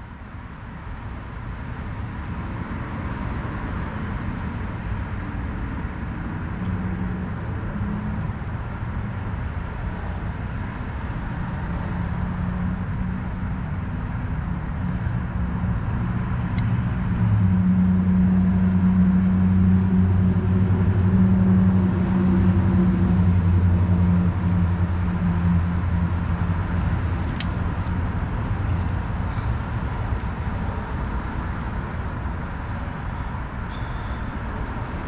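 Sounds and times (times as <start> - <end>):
vehicle engine humming: 0.0 - 35.0
light clicks of brake clips: 16.3 - 16.7, 26.8 - 31.8.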